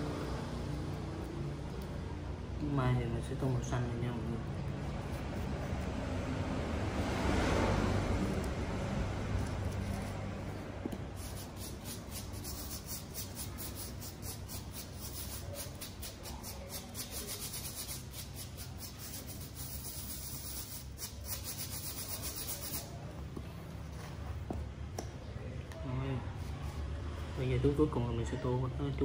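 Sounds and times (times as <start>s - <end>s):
fingertips rubbing sand on card: 11.1s - 23.0s.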